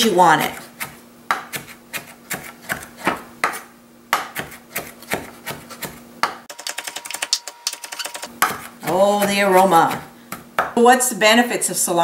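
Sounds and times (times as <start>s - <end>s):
knife chopping on wooden board: 0.5s - 6.5s, 8.3s - 10.8s.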